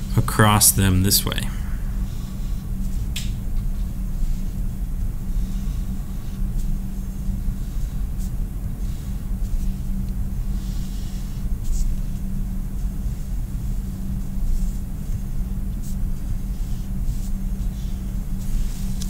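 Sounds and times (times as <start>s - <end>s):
steady low rumble: 0.0s - 10.5s
constant low hum: 0.0s - 19.0s
marker scratching on paper: 10.6s - 12.2s.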